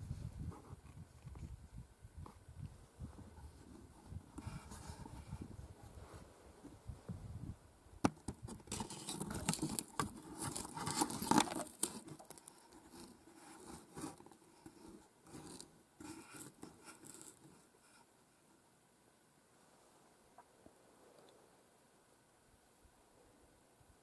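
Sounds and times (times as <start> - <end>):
rustling and scraping at microphone: 0.0 - 18.6.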